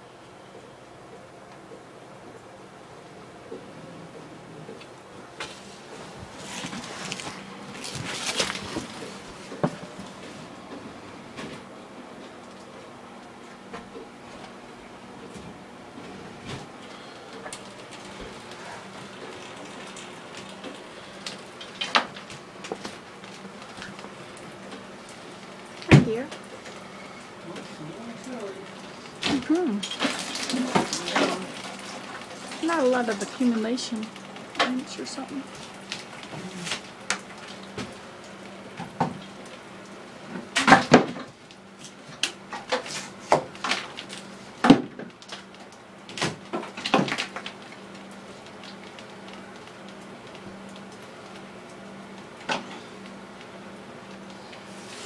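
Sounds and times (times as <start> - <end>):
faint hum: 0.0 - 55.0.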